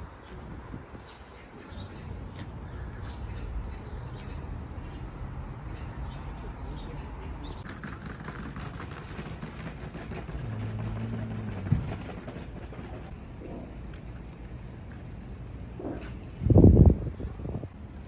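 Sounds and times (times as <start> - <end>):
wind rumbling on microphone: 0.0 - 1.2, 15.9 - 17.8.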